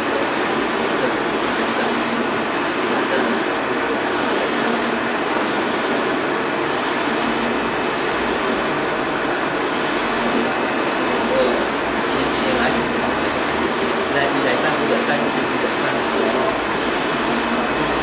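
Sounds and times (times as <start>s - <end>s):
printer mechanical whirr: 0.0s - 18.0s.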